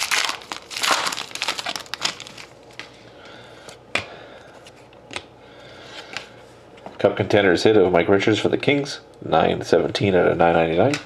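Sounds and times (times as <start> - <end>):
wrapper crinkling: 0.0 - 3.0.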